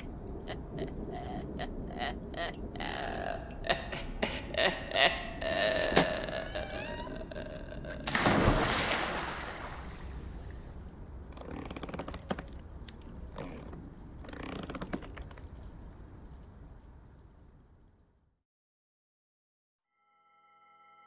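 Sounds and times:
creaking and clicking: 0:05.9 - 0:08.0, 0:11.3 - 0:16.6.

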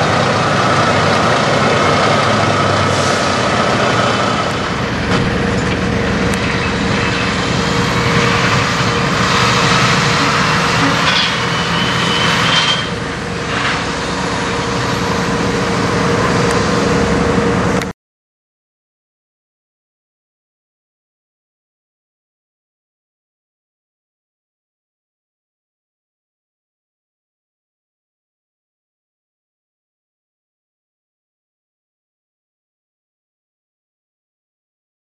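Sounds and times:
diesel truck engine: 0:00.0 - 0:17.9.

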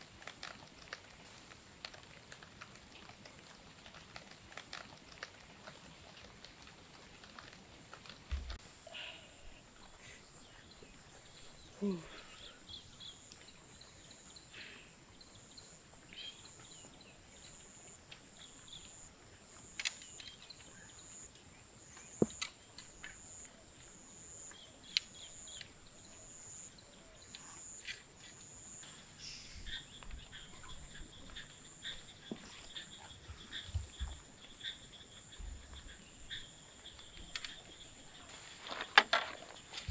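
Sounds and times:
bird chirps: 0:24.4 - 0:39.9.

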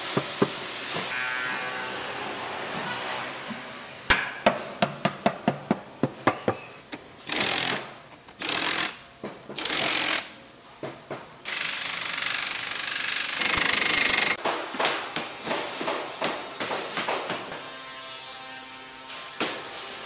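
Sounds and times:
pneumatic impact wrench rattling: 0:07.2 - 0:09.0, 0:09.6 - 0:10.3, 0:11.4 - 0:14.4.

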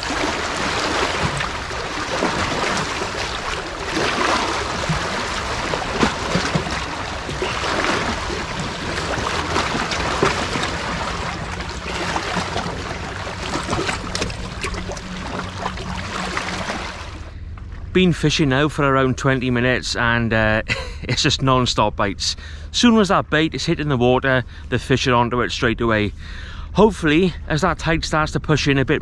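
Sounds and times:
sea waves lapping against rocks: 0:00.0 - 0:17.3.

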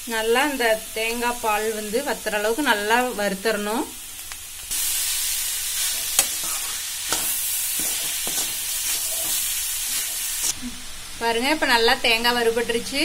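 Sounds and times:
food sizzling in a pan: 0:00.0 - 0:13.0
metal spatula scraping a pan: 0:04.8 - 0:10.5.

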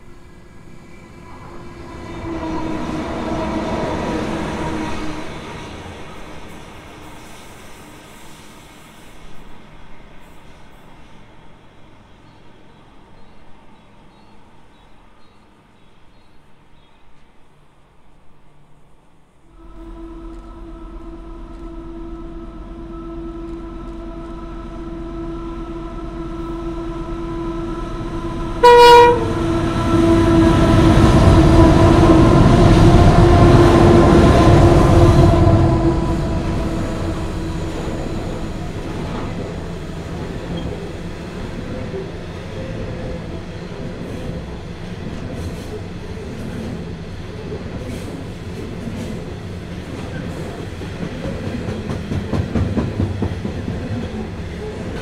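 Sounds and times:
diesel locomotive engines: 0:00.0 - 0:55.0
train horn blast: 0:01.2 - 0:06.4, 0:19.5 - 0:42.2.

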